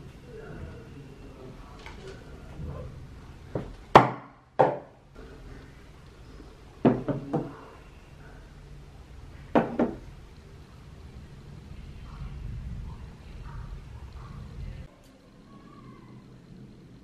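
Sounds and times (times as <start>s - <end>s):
objects knocking on shelf: 3.6s - 4.9s, 6.8s - 7.6s, 9.6s - 10.0s.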